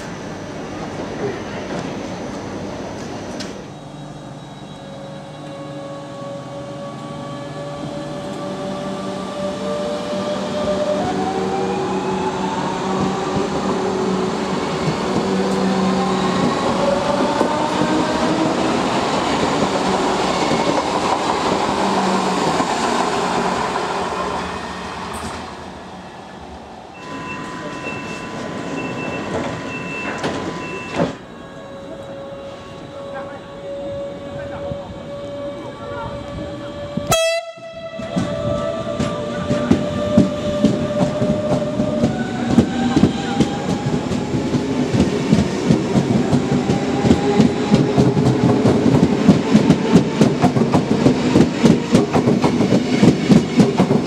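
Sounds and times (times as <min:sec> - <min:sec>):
standing train hum: 0:00.0 - 0:54.0
high beep: 0:27.0 - 0:31.2.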